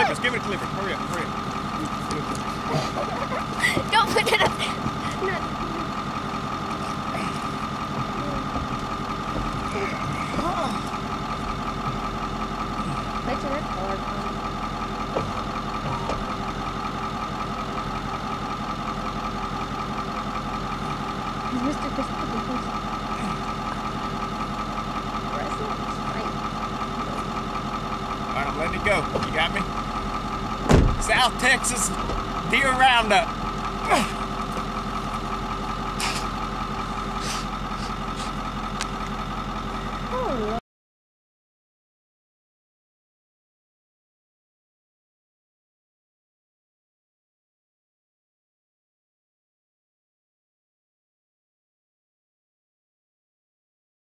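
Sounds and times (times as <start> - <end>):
mechanical motor hum: 0.0 - 40.6
vehicle engine idling: 0.0 - 40.6.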